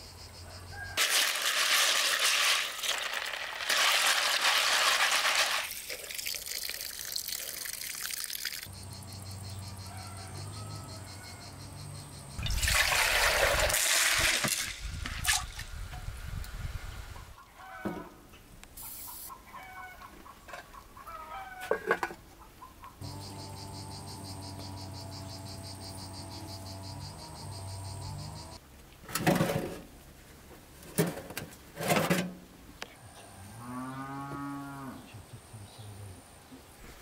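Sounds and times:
cattle mooing: 33.6 - 35.1.

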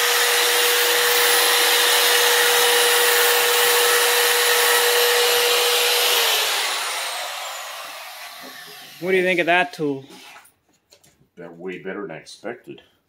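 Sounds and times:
bit cutting steel plate: 0.0 - 10.2
rotary tool whining: 0.0 - 10.5.

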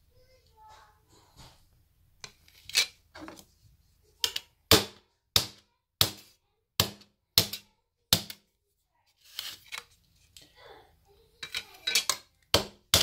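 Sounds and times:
knife scraping glass: 2.5 - 3.0.

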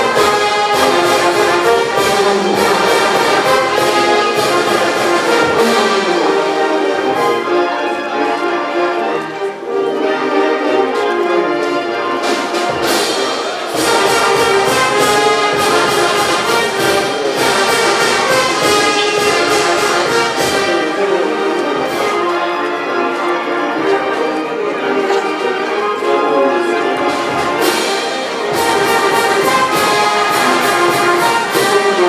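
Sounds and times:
brass band playing dance music: 0.0 - 32.0
drums steady beat: 12.2 - 20.9.

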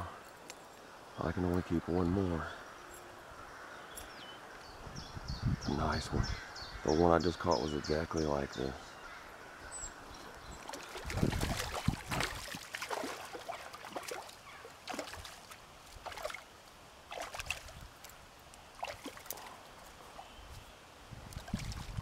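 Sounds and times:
faint sloshing water: 10.1 - 20.6, 21.3 - 22.0.

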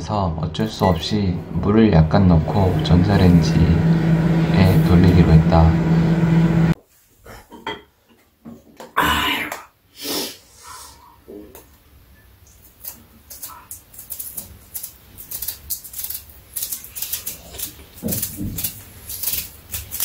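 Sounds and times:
knife peeling fruit skin: 12.6 - 20.0.

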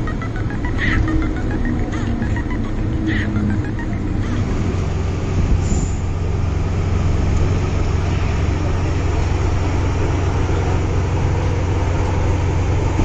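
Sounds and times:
train rumbling in tunnel: 0.0 - 13.0.

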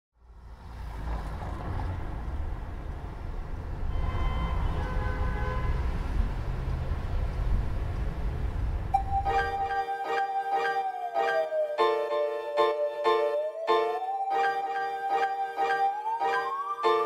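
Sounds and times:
rumble of city traffic: 0.2 - 17.0
short high tones: 9.0 - 17.0.

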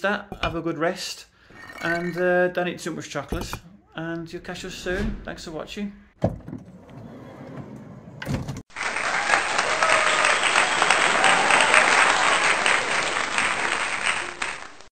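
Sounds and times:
crowd applauding: 8.7 - 14.9.

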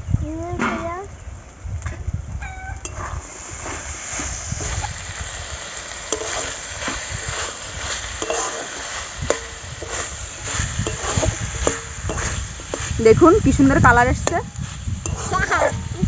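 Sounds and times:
metal spatula scraping a pan: 2.8 - 5.0, 5.8 - 16.0
food sizzling: 2.8 - 16.0.

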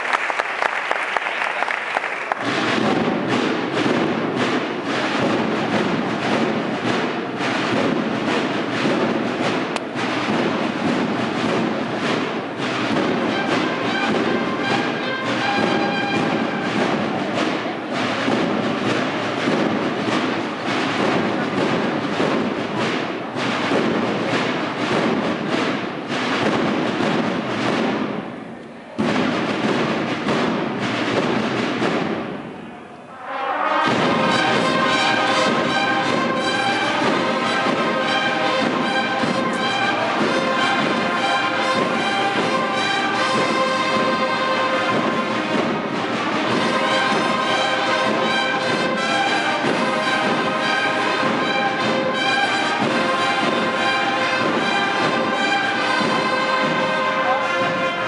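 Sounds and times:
brass band playing: 0.0 - 28.4, 29.0 - 58.0.

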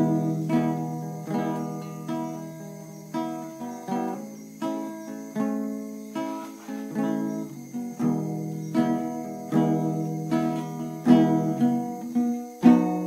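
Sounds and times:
guitar strumming chords: 0.0 - 13.0.

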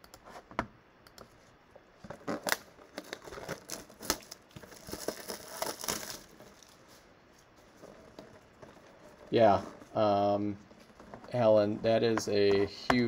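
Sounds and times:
packaging tearing and crinkling: 2.2 - 6.8.

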